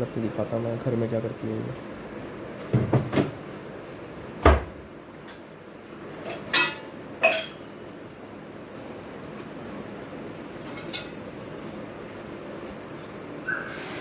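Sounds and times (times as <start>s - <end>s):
cabinet door shutting with a thud: 2.7s - 3.3s, 4.4s - 4.8s
steel pots and utensils clanking: 6.3s - 7.6s.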